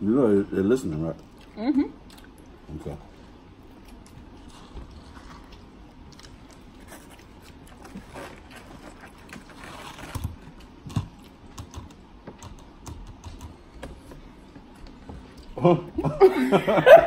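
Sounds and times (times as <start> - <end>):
person chewing: 1.2 - 2.7, 3.3 - 12.0.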